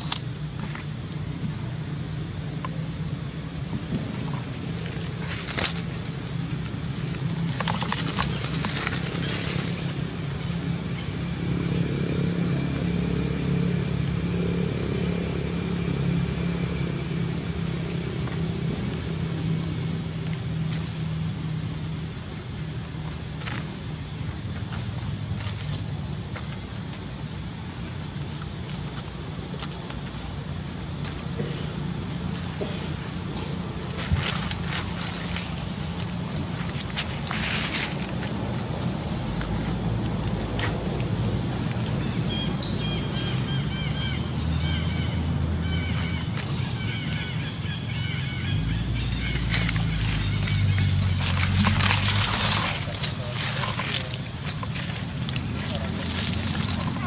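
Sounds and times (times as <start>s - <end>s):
high-pitched insect chorus: 0.0s - 57.0s
low steady hum: 48.3s - 57.0s.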